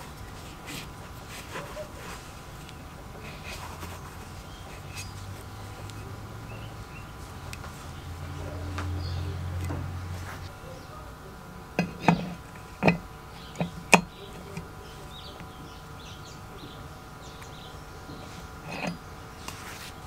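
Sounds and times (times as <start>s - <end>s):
low hum: 0.0s - 20.0s
wrench clinking on metal: 18.7s - 19.0s.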